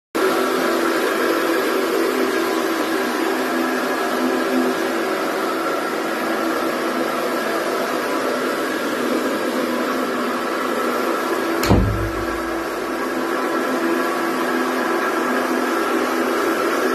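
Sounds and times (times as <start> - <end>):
floor scrubbing machine humming: 0.2 - 16.9
thump: 11.6 - 12.9.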